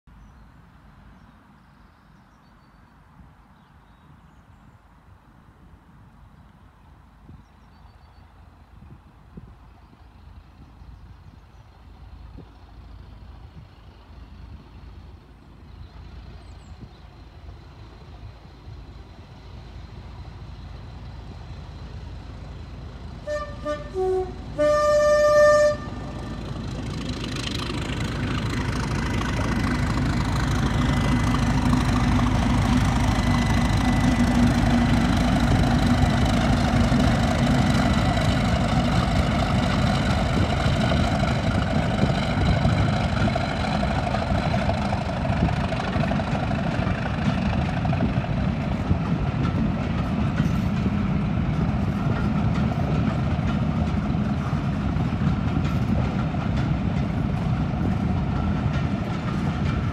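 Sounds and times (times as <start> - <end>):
diesel locomotive engine: 0.1 - 59.9
train coaches rolling by: 4.9 - 59.9.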